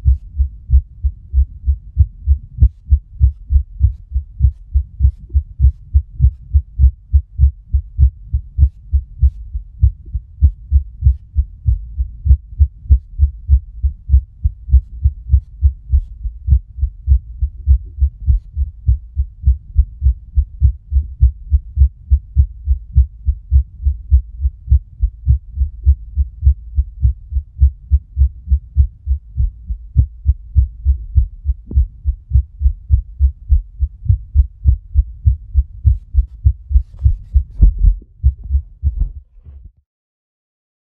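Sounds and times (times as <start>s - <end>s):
heartbeat through stethoscope: 0.0s - 39.8s.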